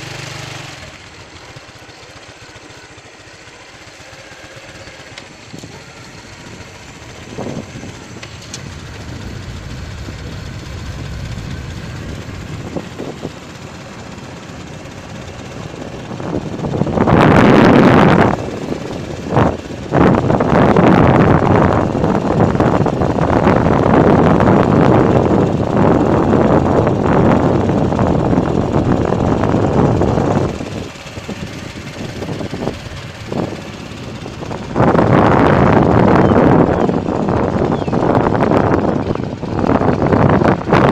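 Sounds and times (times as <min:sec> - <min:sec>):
vehicle engine and road rumble: 0:00.0 - 0:40.9
wind buffeting microphone: 0:04.6 - 0:40.9.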